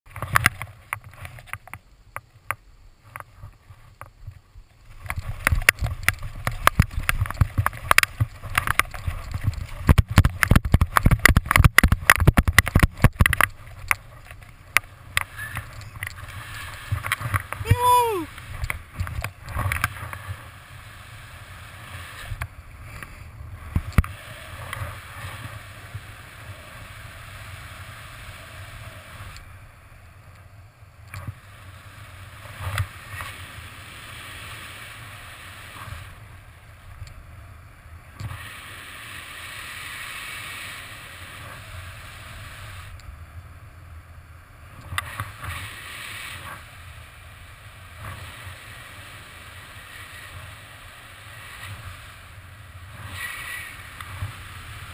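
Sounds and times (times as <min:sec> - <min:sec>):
wind rushing over microphone: 0:03.1 - 0:30.2.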